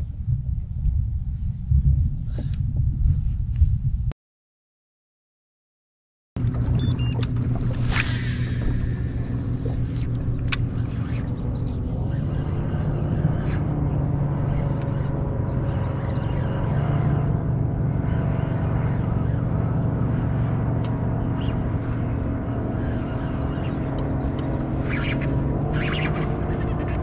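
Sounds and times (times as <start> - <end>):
electric trolling motor humming: 6.4 - 27.0
moving water: 6.4 - 27.0.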